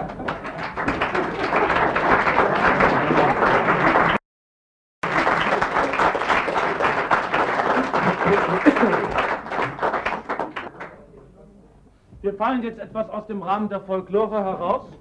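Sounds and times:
audience applauding: 0:00.0 - 0:04.2, 0:05.0 - 0:11.0.

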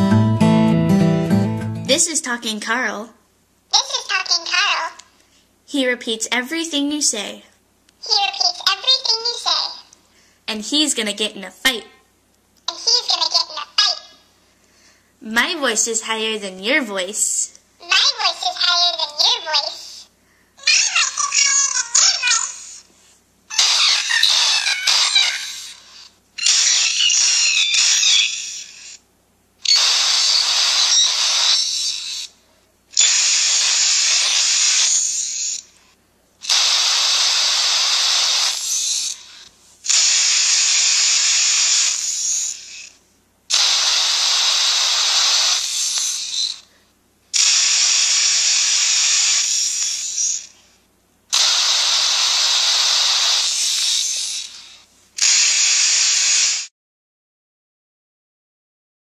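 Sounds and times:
garbled pitched-up voice playback: 0:01.8 - 0:03.1, 0:03.7 - 0:05.0, 0:08.0 - 0:09.9, 0:12.7 - 0:14.2, 0:15.2 - 0:22.9, 0:23.5 - 0:25.8, 0:26.4 - 0:28.5.

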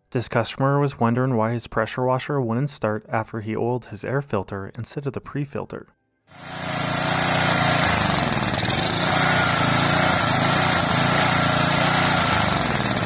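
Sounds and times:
small gas engine running: 0:06.3 - 0:13.0.

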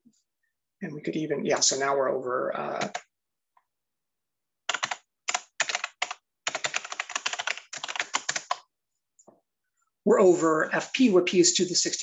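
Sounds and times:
typing on computer keyboard: 0:04.7 - 0:08.6.

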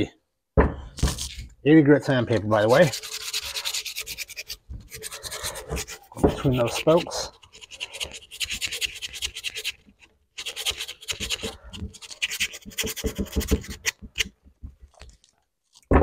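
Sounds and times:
sandpaper rubbing by hand: 0:02.3 - 0:14.3.

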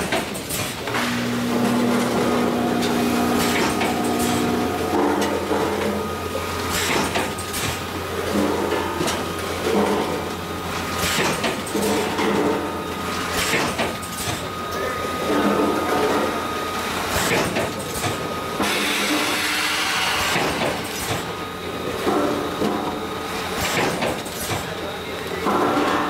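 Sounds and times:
packaging machine hum: 0:00.0 - 0:26.0
machine hiss: 0:17.0 - 0:21.4
machine sharp clacks: 0:17.1 - 0:21.3.

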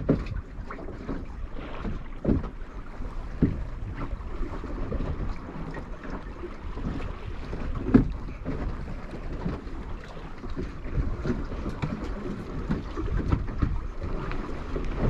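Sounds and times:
water slapping boat hull: 0:00.0 - 0:15.0
wind buffeting microphone: 0:00.0 - 0:15.0
knocks and thumps: 0:03.3 - 0:03.7.

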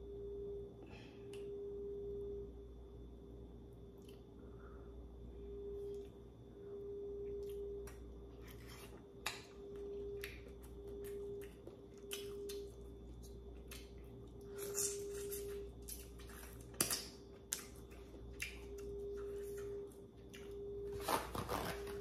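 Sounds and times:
faint steady hum: 0:00.0 - 0:22.0
chewing with sharp clicks: 0:09.2 - 0:14.5.

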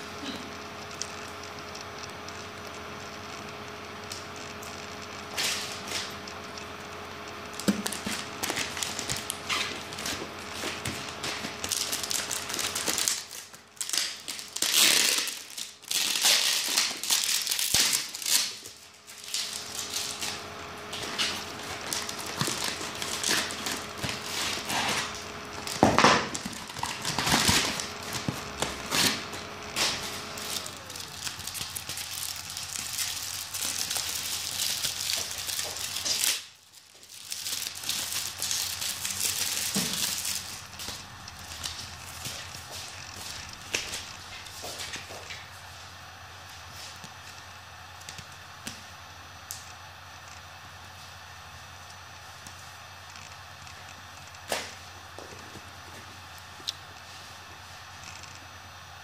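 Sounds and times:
faint steady hum: 0:00.0 - 0:59.0
plastic packaging crinkling: 0:00.8 - 0:45.6.

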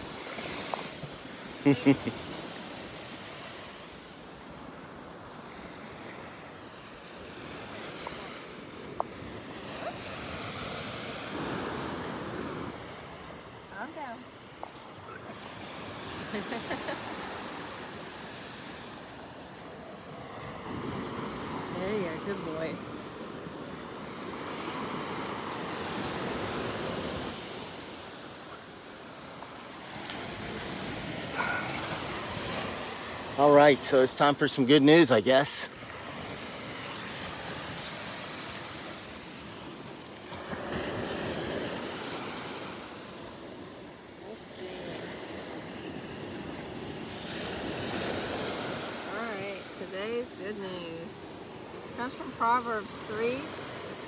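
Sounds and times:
waves washing onto beach: 0:00.0 - 0:54.0
wind: 0:00.0 - 0:54.0.

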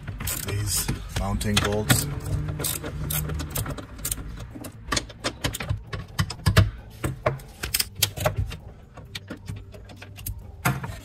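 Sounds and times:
socket ratchet clicking: 0:01.5 - 0:06.6.

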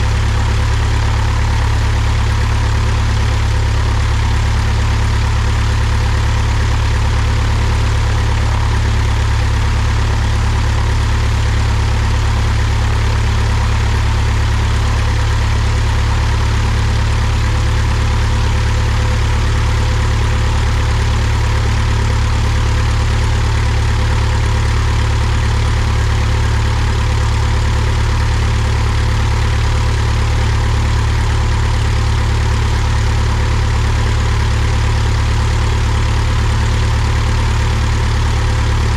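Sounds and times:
propeller plane engine running: 0:00.0 - 0:38.9.

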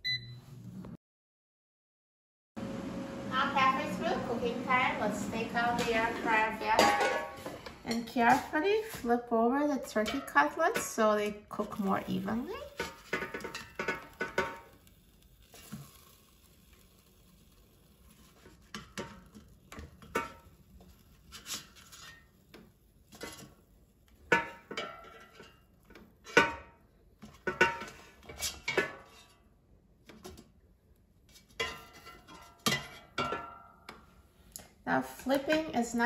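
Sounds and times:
spatula scraping metal basket: 0:05.4 - 0:09.1, 0:09.9 - 0:26.6, 0:27.3 - 0:29.4, 0:31.3 - 0:33.3.

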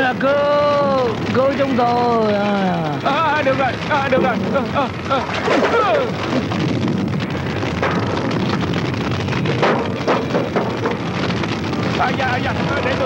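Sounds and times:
fire burning: 0:00.0 - 0:13.0
fire crackling: 0:00.0 - 0:13.0.

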